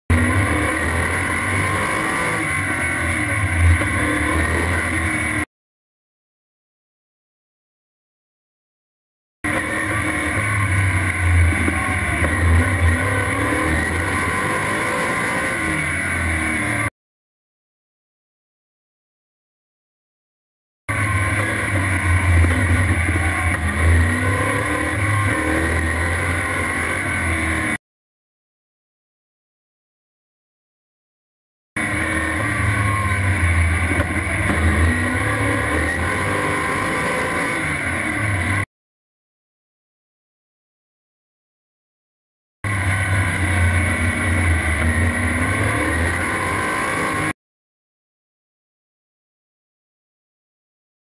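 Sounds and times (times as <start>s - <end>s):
race car engine at speed: 0.1s - 5.5s, 9.4s - 16.9s, 20.9s - 27.8s, 31.8s - 38.7s, 42.6s - 47.4s.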